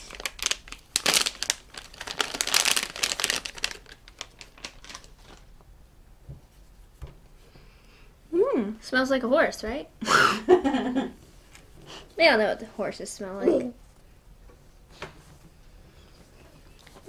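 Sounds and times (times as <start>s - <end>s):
packaging crinkling and tearing: 0.0s - 5.5s.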